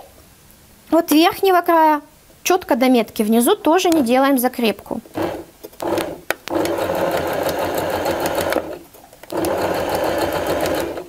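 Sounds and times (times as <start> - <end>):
sewing machine stitching: 5.1 - 11.0.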